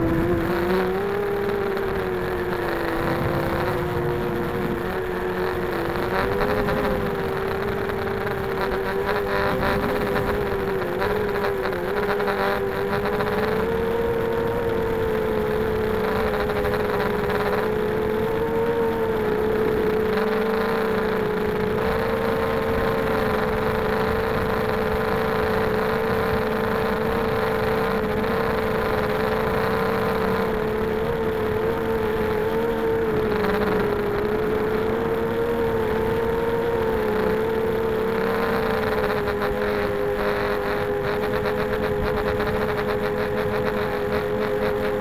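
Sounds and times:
quadcopter motors buzzing whine: 0.0 - 45.0.

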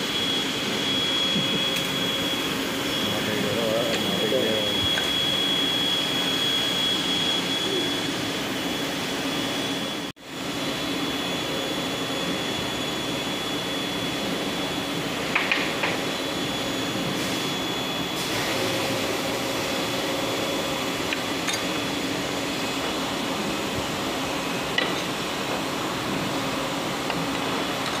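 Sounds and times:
thin high whine: 0.0 - 28.0
workshop machinery hum: 0.0 - 28.0.

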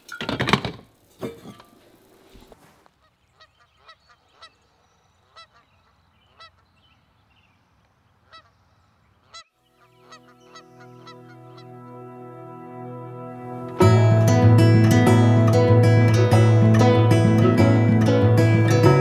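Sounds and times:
geese honking: 3.0 - 6.7, 8.2 - 8.6, 9.2 - 14.5
soft acoustic guitar music: 11.4 - 19.0.

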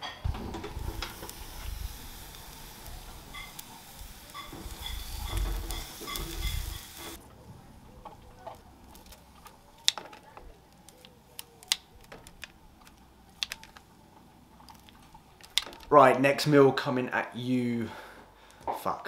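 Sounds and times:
chicken sizzling on a grill: 0.2 - 7.2.

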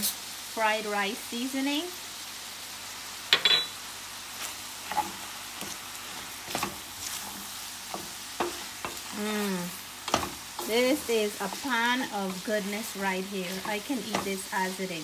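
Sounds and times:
food sizzling in a frying pan: 0.0 - 15.0
wooden spatula scraping a pan: 4.4 - 14.8.

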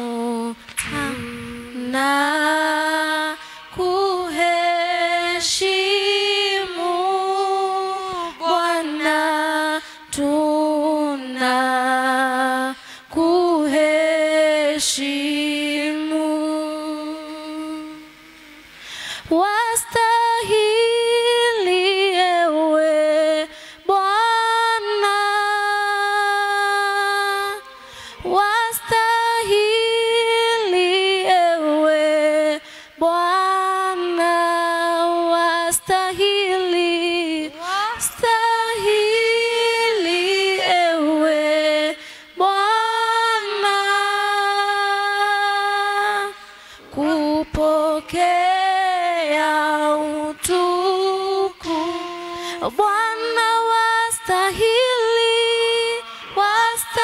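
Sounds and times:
women singing unaccompanied: 0.0 - 57.0
singers breathing: 3.4 - 3.7, 12.8 - 13.1, 18.6 - 19.3, 23.5 - 23.8, 27.7 - 28.3, 32.6 - 33.0, 42.0 - 42.3, 46.4 - 46.9, 52.0 - 52.6.

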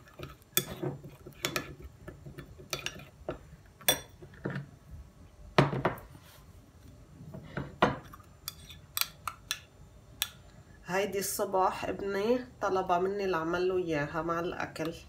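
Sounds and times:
spoon scraping glass bowl: 0.0 - 3.2, 8.4 - 8.9.

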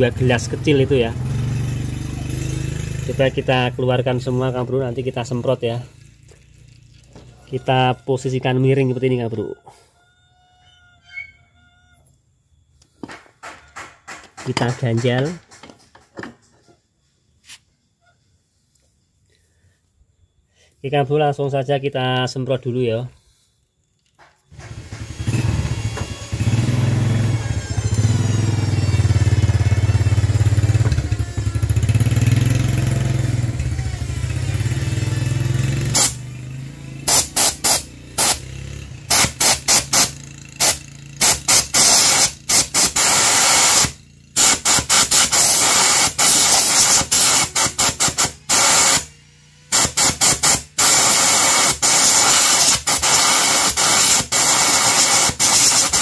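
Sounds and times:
compressed air hissing: 35.8 - 36.2, 37.1 - 49.1, 49.7 - 56.0.

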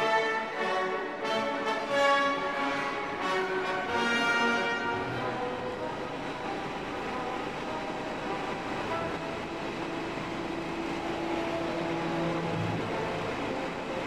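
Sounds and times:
long held notes: 0.0 - 14.0
helicopter engine and rotor noise: 5.8 - 14.0.

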